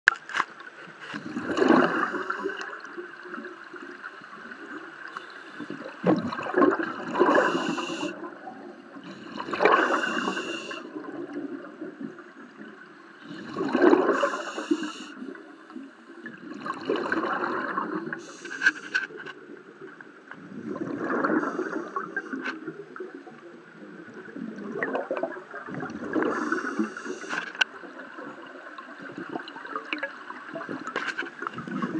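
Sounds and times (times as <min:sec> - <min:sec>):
watery background: 0:00.1 - 0:31.9
exhaled bubbles underwater: 0:01.2 - 0:18.4, 0:19.4 - 0:31.9
regulator hiss: 0:07.3 - 0:08.1, 0:09.8 - 0:10.8, 0:14.2 - 0:15.2.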